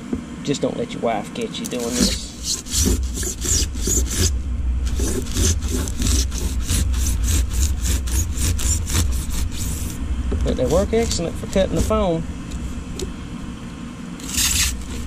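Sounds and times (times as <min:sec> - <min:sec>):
knife sawing through foam: 0:01.7 - 0:12.2, 0:14.2 - 0:15.0.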